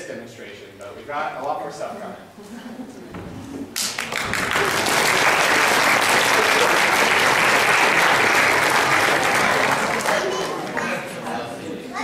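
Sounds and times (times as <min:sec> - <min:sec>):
audience applauding: 0:03.8 - 0:11.2.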